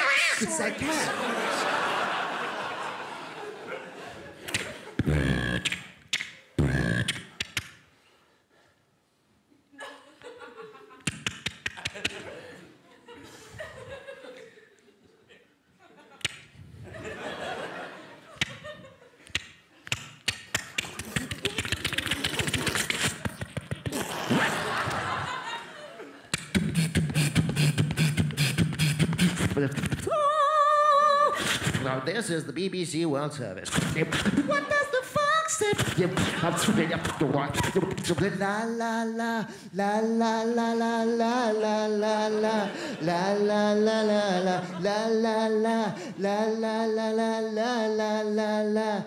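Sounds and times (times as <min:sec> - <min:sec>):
beatboxed static hiss: 0:04.5 - 0:07.7, 0:19.3 - 0:25.0, 0:26.4 - 0:30.1, 0:31.4 - 0:32.0, 0:33.6 - 0:34.5, 0:35.6 - 0:38.4
sharp mouth clicks: 0:04.5 - 0:07.9, 0:11.0 - 0:12.2, 0:16.2 - 0:16.5, 0:18.4 - 0:18.6, 0:19.2 - 0:24.4, 0:26.3 - 0:30.1.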